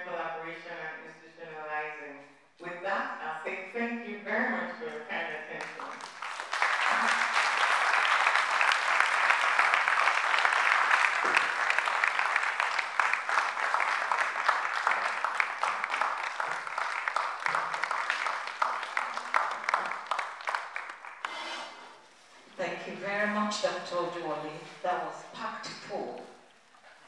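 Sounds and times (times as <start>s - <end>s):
audience applauding: 5.8s - 21.6s.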